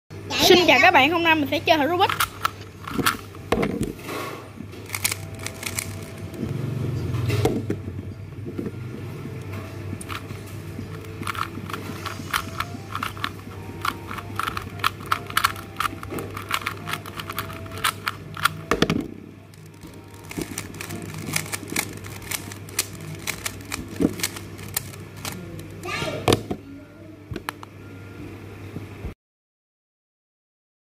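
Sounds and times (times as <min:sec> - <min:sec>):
steady low hum: 0:00.1 - 0:29.2
puzzle cube turning clicks: 0:02.1 - 0:03.5, 0:04.8 - 0:06.4, 0:10.0 - 0:18.8, 0:19.5 - 0:25.8.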